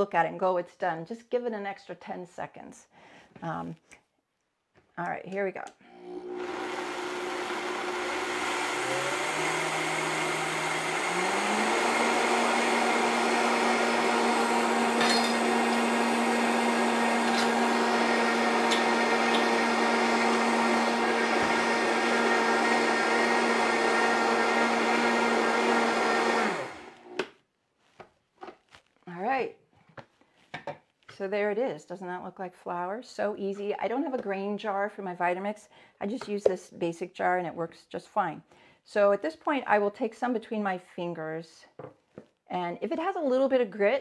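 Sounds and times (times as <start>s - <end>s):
blender grinding grain: 5.8s - 27.3s.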